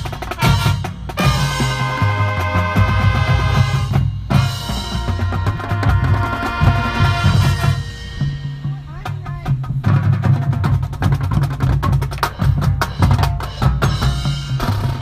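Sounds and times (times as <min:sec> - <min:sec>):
low brass notes: 0:00.0 - 0:08.6
drums: 0:00.0 - 0:15.0
marching band playing: 0:00.0 - 0:15.0.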